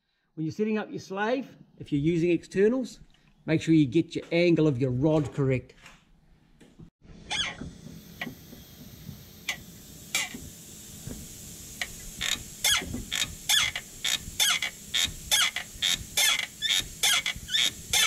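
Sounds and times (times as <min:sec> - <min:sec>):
clutch push rod squeaking: 0:07.3 - 0:07.7.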